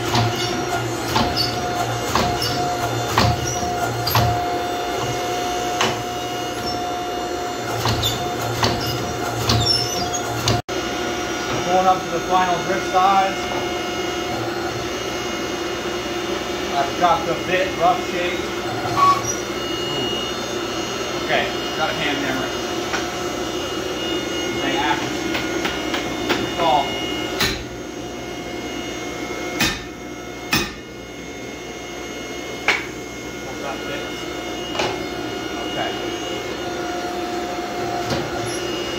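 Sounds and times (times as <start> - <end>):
machine hum: 0.0 - 38.9
power hammer striking hot steel: 27.4 - 27.7, 29.6 - 30.9.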